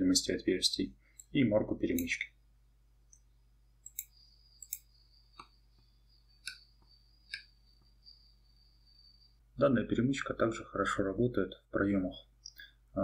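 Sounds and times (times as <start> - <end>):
faint high-pitched whine: 0.0 - 13.0
computer mouse clicks: 3.1 - 7.6.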